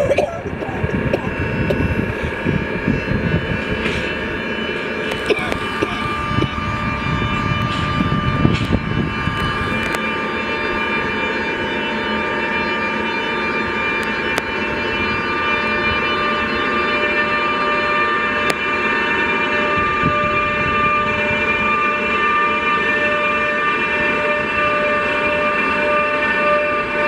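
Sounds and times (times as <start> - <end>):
locomotive traction whine: 0.0 - 27.0
wheels rumbling on rail: 0.0 - 27.0.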